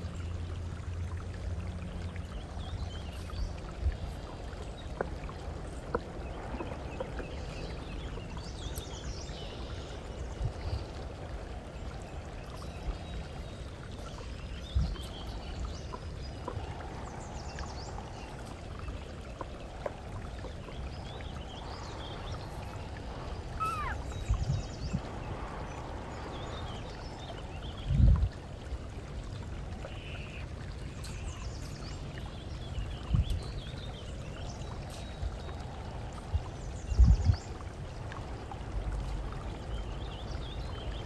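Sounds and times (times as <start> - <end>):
steady rushing noise: 9.0 - 28.8
faint high chirps: 23.6 - 24.1.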